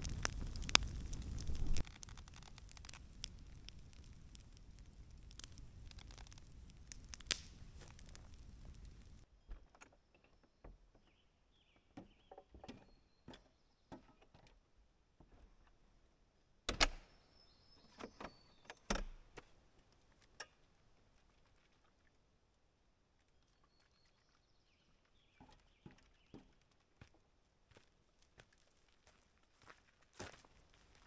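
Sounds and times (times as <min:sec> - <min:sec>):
clicks and knocks of door: 0:16.7 - 0:17.0.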